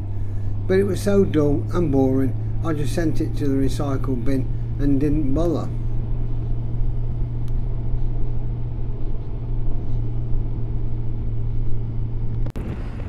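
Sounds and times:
motorcycle engine drone: 0.0 - 13.0
road noise: 0.0 - 13.0
wind noise: 5.8 - 13.0.

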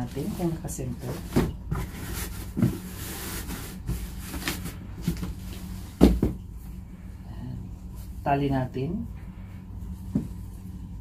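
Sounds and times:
cloth rustling: 0.0 - 6.2
box thump: 6.0 - 6.4.

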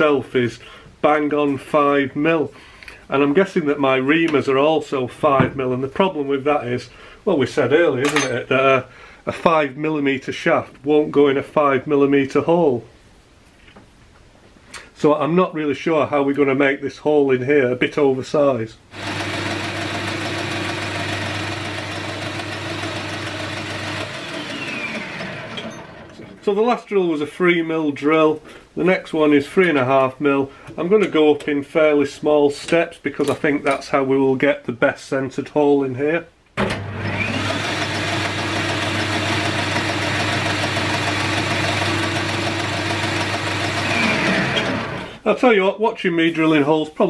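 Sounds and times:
metal lathe drilling steel: 19.0 - 26.3, 37.0 - 45.1
lathe spinning down whine: 19.0 - 26.4, 37.0 - 45.1.

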